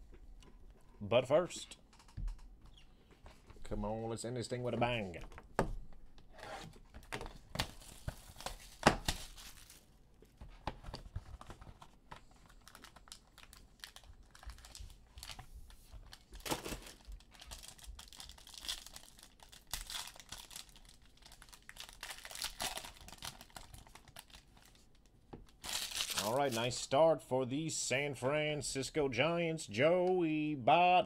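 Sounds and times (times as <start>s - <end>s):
wrapper tearing and crinkling: 7.6s - 9.9s, 12.6s - 15.4s, 16.1s - 26.6s.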